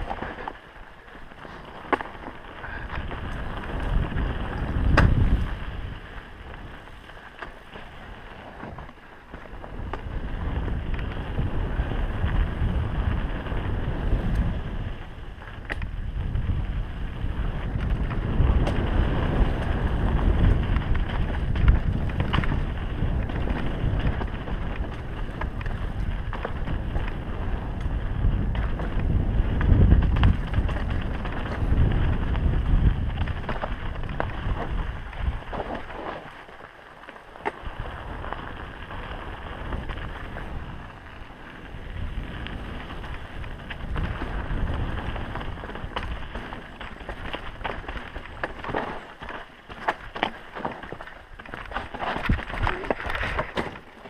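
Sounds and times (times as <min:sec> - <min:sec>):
bike clicks and rattles: 0:00.0 - 0:54.0
tyres rumbling on dirt: 0:00.0 - 0:54.0
wind over microphone: 0:00.0 - 0:54.0.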